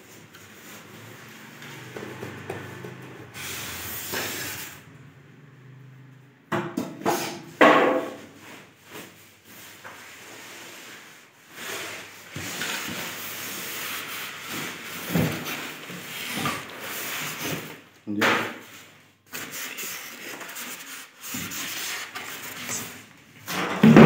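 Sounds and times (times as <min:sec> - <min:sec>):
polystyrene scraping against cardboard: 0:03.3 - 0:04.8, 0:08.1 - 0:17.9, 0:18.6 - 0:23.6.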